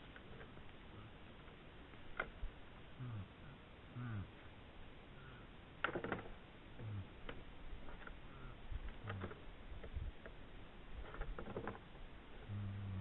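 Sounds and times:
antlers clicking and knocking: 5.8 - 6.4, 11.0 - 11.8.

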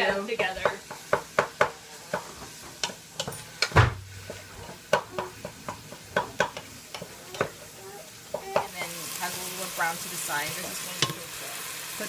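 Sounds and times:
food sizzling in a hot pan: 0.0 - 12.0
utensil scraping a pan: 0.4 - 8.7.

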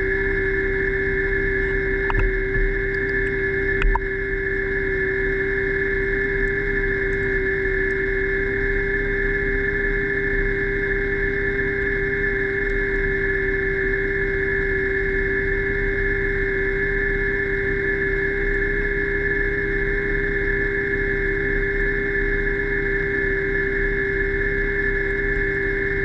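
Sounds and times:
underwater scooter motor whining: 0.0 - 26.0.

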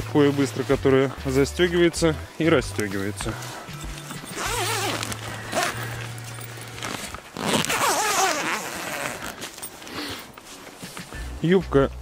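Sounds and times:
tent door zipper: 3.4 - 10.4.

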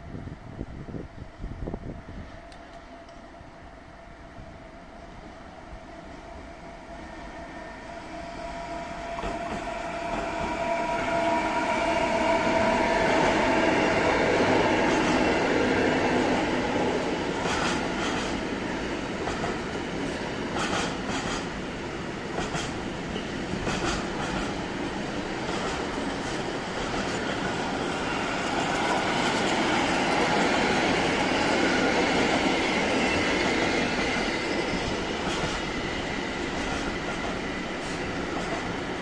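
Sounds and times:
electric locomotive whine: 0.0 - 39.0
train wheels clicking over rail joints: 17.3 - 39.0.

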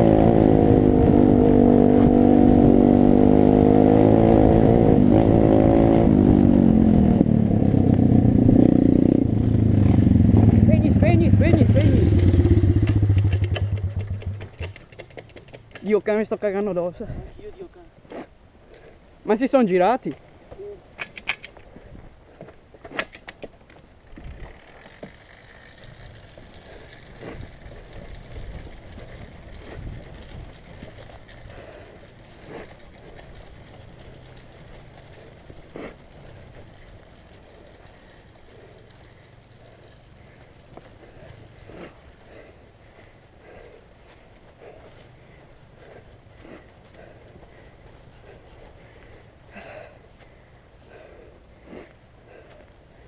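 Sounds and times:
pit bike engine running hard: 0.0 - 14.7, 24.6 - 50.0
low steady rumble: 4.3 - 14.6
sharp cracks and knocks: 12.8 - 15.9, 22.8 - 25.2.

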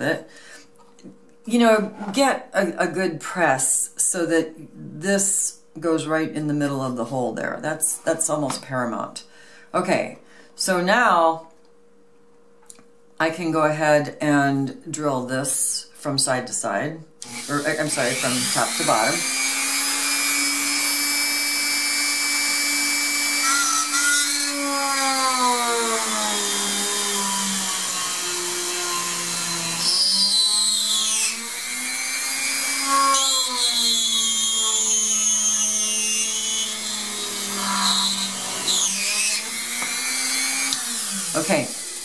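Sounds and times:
bit drilling through clay: 17.2 - 42.0
drill press motor whining: 17.2 - 42.0.

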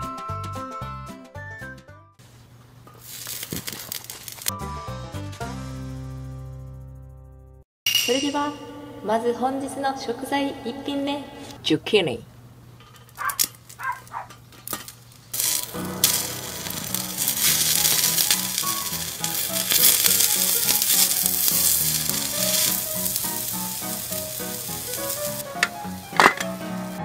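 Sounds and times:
background music: 0.0 - 2.1, 4.5 - 7.0, 15.4 - 27.0
zucchini sizzling on hot griddle: 3.0 - 4.5, 15.3 - 27.0.

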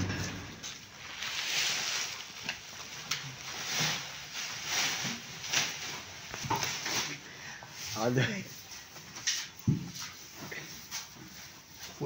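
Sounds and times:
hooves rustling in sawdust: 0.0 - 12.0.

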